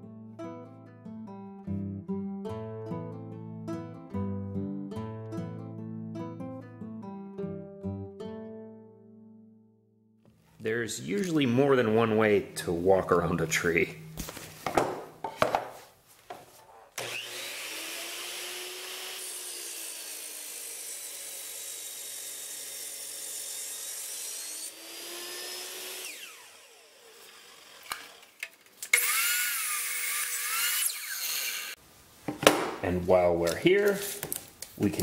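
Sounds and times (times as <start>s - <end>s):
miter saw cutting wood: 17.0s - 31.8s.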